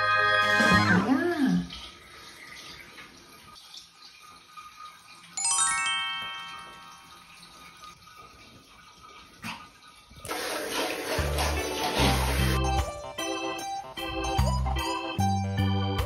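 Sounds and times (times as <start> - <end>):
cheerful background music: 0.0 - 1.3, 5.4 - 7.2, 11.1 - 16.0
rising chime sound effect: 5.4 - 7.4
water sloshing in bathtub: 7.2 - 12.6.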